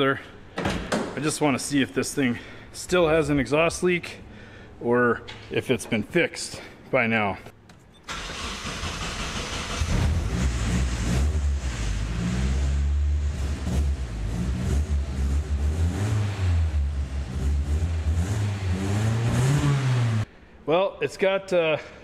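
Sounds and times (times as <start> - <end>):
car engine revving: 8.1 - 20.3.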